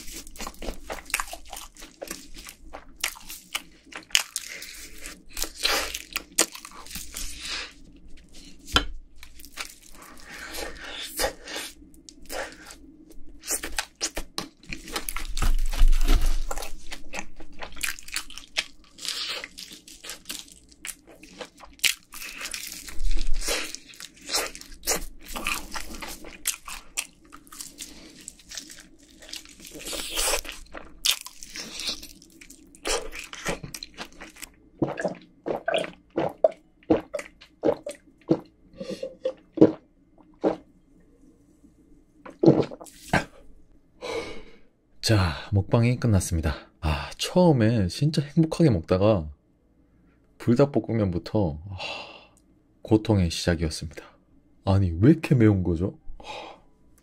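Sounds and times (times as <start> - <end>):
crunching and chewing fried chicken: 0.0 - 38.6.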